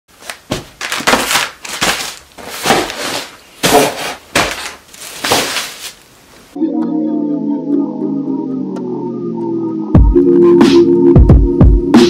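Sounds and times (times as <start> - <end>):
cardboard rustling: 0.1 - 6.6
boxes and books dropped on bed: 0.5 - 6.0.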